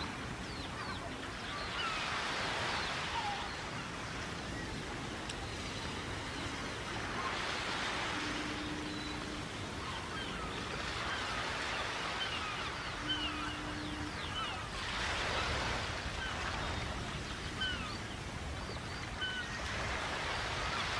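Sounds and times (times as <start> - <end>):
wind and water rushing: 0.0 - 20.9
low steady hum: 4.0 - 18.5.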